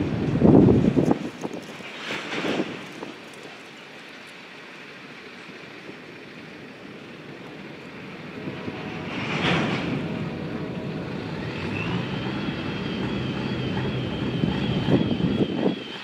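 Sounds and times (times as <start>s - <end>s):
freight train rolling on rails: 0.0s - 16.0s
high wavering wheel squeal: 7.8s - 16.0s.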